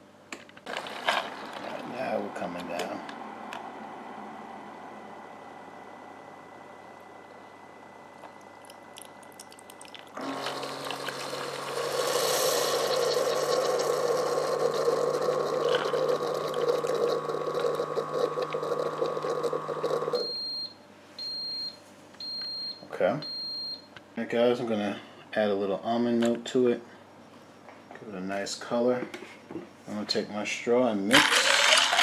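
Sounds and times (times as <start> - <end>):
coffee maker pump humming: 0.7 - 20.4, 31.1 - 32.0
hot water hissing: 9.8 - 19.9.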